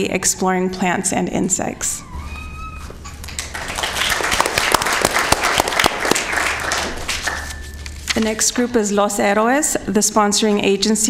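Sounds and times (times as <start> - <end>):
people applauding: 3.1 - 7.7.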